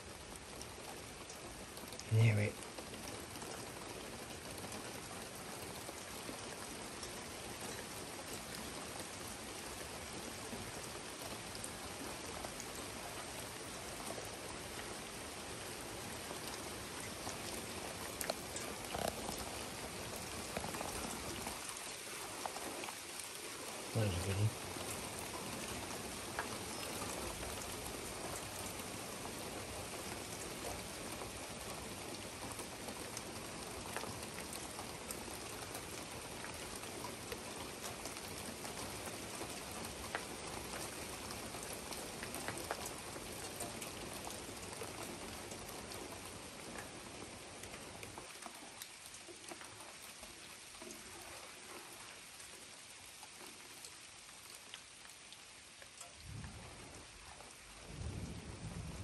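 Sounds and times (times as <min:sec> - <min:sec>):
heavy rain falling: 0:00.0 - 0:59.0
raindrops tapping: 0:16.4 - 0:23.2, 0:23.8 - 0:28.6.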